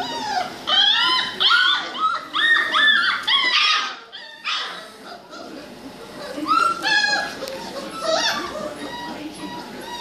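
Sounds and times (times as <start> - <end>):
puppies whining and yelping: 0.0 - 10.0.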